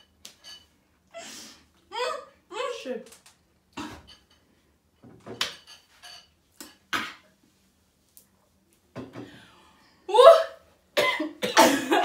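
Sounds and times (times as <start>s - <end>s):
cutlery clinking against bowls: 0.0s - 0.7s, 4.0s - 4.5s, 5.4s - 6.9s.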